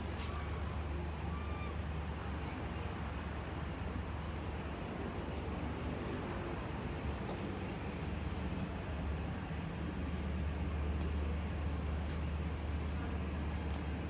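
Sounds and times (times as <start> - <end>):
low city rumble: 0.0 - 14.0.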